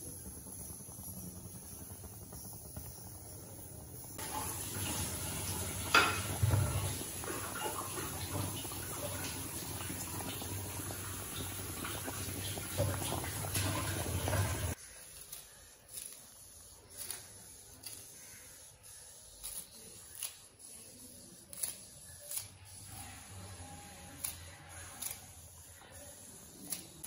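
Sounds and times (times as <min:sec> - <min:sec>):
curry boiling in a metal pan: 0:00.0 - 0:15.0.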